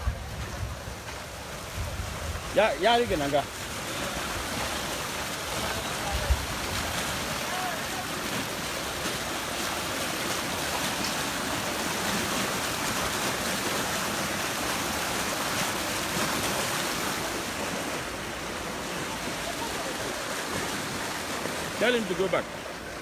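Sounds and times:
floodwater rushing: 0.0 - 23.0.

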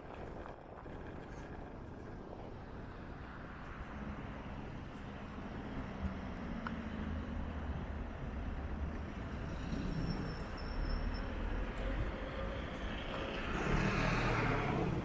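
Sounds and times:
wind and road noise rumble: 0.0 - 15.0.

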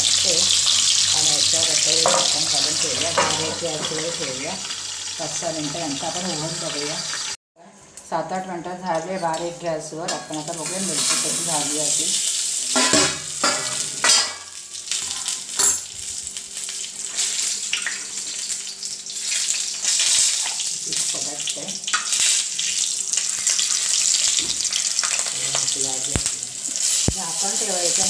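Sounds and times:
chillies sizzling in oil: 0.0 - 7.4, 8.8 - 28.0
metal lid and spoon clanking on pan: 2.0 - 2.4, 3.2 - 4.0, 12.7 - 15.9.

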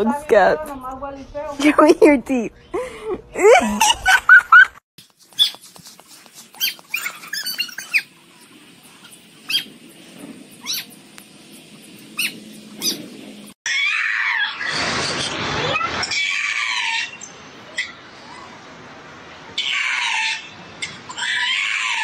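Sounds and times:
dog squealing: 6.6 - 8.1, 9.0 - 9.7, 10.6 - 10.9, 12.2 - 14.9, 16.0 - 18.5, 19.6 - 22.0.

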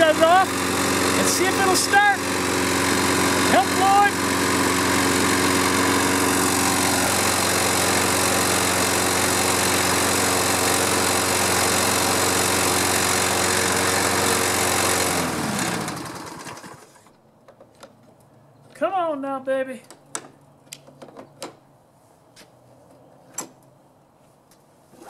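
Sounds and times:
lawn mower engine running: 0.0 - 17.2.

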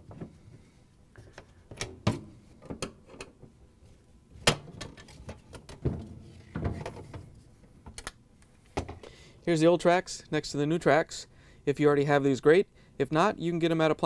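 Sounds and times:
clicks and knocks of metal and plastic: 4.4 - 8.2.

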